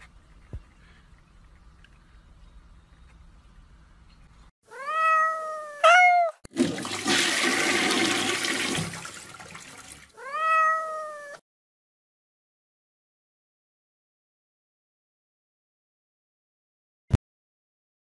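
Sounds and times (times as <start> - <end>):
cat meowing: 4.7 - 6.4, 10.1 - 11.4.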